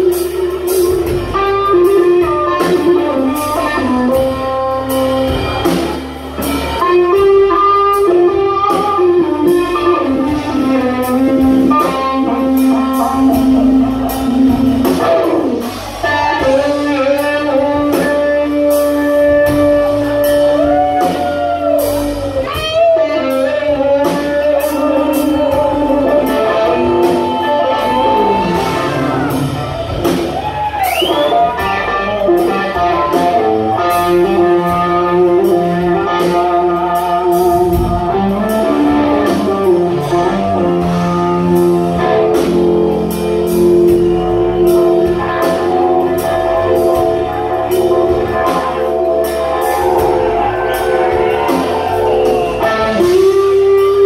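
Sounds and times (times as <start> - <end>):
drum kit: 0.0 - 54.0
electric bass: 0.0 - 54.0
electric guitar lead with bends: 0.0 - 54.0.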